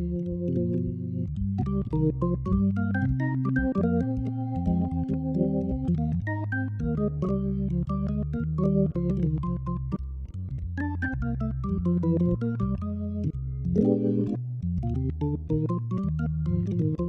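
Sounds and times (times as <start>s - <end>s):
jazz organ playing: 0.0s - 10.0s, 10.8s - 14.4s.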